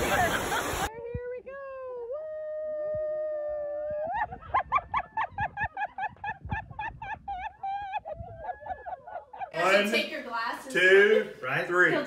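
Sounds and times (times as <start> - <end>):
high-pitched laughter: 2.7 - 9.5.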